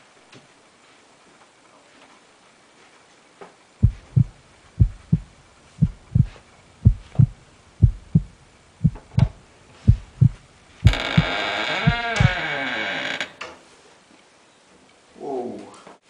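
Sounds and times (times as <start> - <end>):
heartbeat thumps: 3.8 - 12.4.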